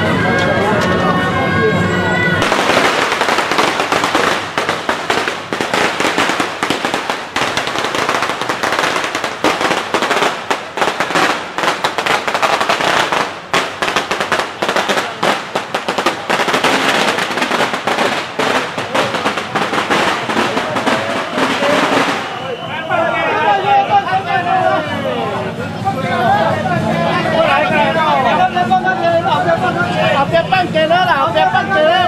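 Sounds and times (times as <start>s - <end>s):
firecrackers crackling: 2.4s - 22.9s.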